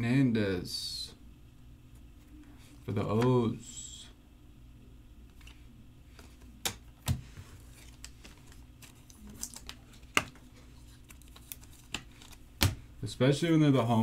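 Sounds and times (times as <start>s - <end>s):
low steady hum: 0.0s - 14.0s
trading cards handled on tabletop: 5.3s - 12.8s.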